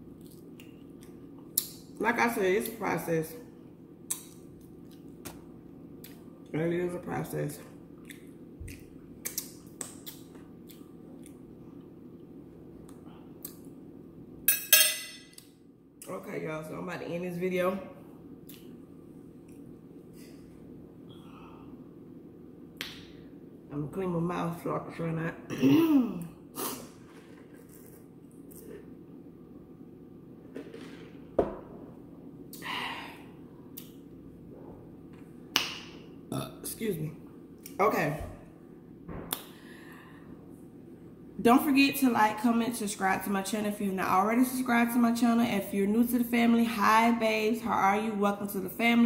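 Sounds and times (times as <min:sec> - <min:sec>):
steady low hum: 0:00.0 - 0:49.0
mouth smacks while eating: 0:08.0 - 0:11.4.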